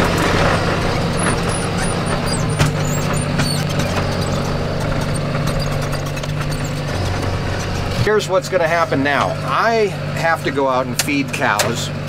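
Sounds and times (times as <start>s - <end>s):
clicks and rattles: 0.0s - 8.1s
tractor engine running: 0.0s - 12.0s.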